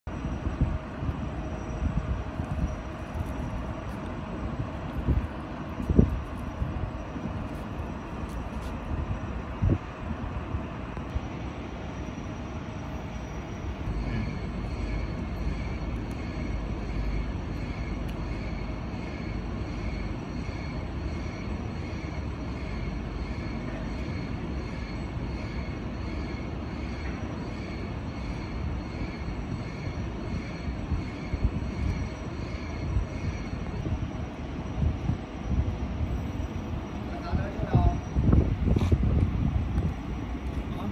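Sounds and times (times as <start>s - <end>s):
factory machinery rumble: 0.0s - 40.9s
faint high electronic beep: 11.9s - 35.0s.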